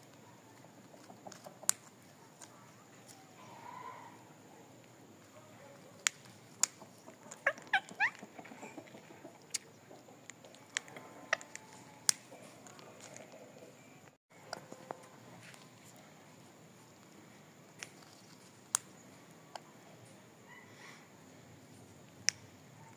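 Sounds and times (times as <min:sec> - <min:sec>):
parakeet squeaky chirps: 0:07.4 - 0:08.2.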